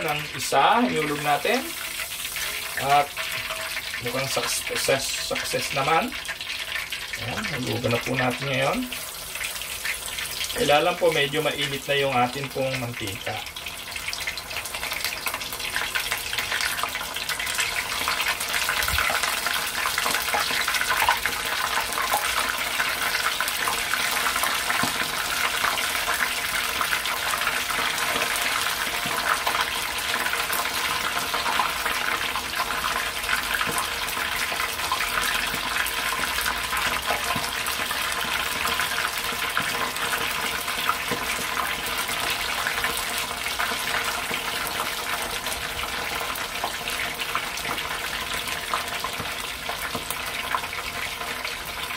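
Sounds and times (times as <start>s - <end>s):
food deep-frying in sizzling oil: 0.0s - 51.9s.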